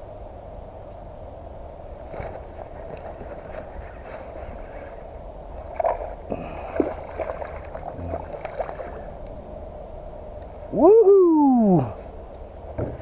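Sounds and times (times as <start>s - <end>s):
fish splashing at surface: 5.7s - 9.1s.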